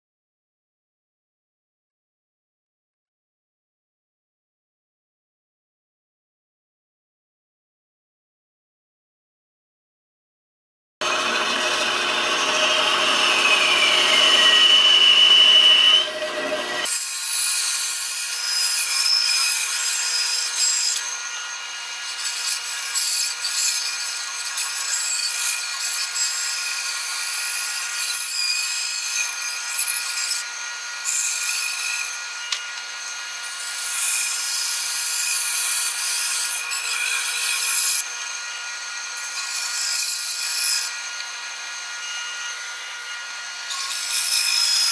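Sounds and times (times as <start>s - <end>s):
bandsaw motor whine: 11.0s - 17.0s.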